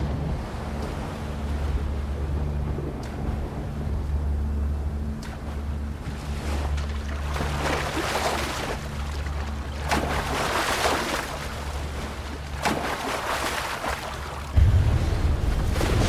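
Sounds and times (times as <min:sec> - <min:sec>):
steady low hum: 0:00.0 - 0:16.0
rushing wind-like noise: 0:13.1 - 0:16.0
loud boom: 0:14.6 - 0:16.0.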